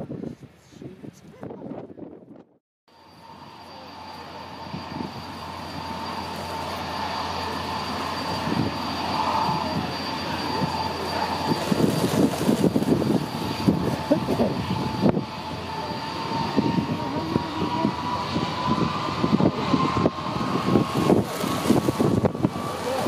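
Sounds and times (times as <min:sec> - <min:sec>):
jet engines whining: 0:02.9 - 0:23.0
low thumps and buffeting: 0:08.4 - 0:22.7.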